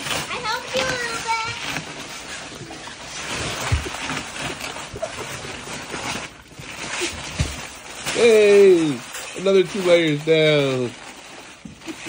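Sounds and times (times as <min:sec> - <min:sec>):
wrapping paper tearing: 0:00.0 - 0:12.0.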